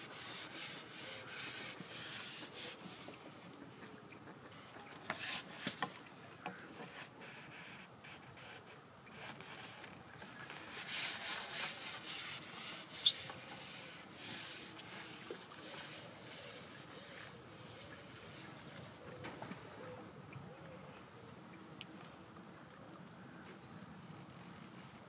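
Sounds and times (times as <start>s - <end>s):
rubbing and rustling: 0.0s - 3.6s, 6.8s - 19.1s.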